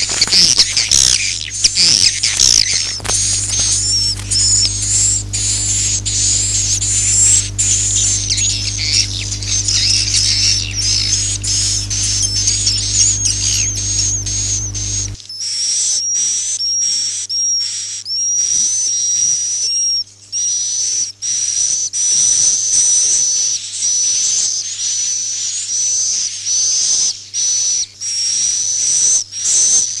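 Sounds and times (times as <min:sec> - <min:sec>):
low hum: 0:00.0 - 0:15.2
swiftlet twittering calls: 0:00.0 - 0:15.2.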